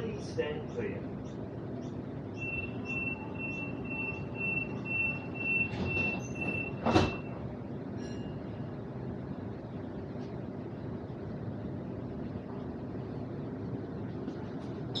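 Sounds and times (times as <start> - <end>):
train carriage rumble: 0.0 - 15.0
door warning beeps: 2.3 - 7.4
train doors thumping shut: 5.6 - 7.4.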